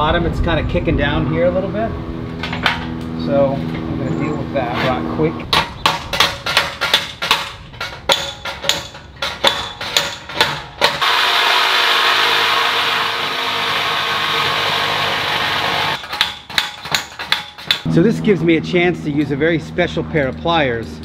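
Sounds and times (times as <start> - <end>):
handheld power tool running: 10.9 - 16.0.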